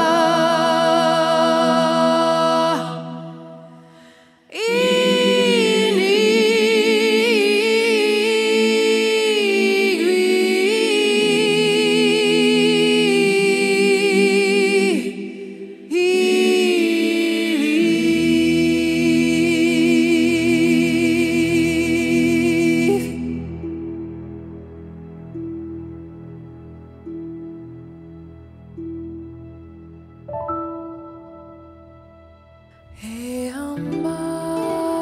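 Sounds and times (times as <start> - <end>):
a cappella choir singing: 0.0 - 25.0.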